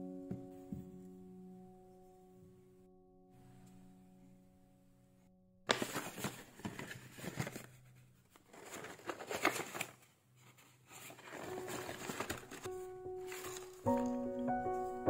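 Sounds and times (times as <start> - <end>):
paper bag rustling and crinkling: 5.7 - 14.3.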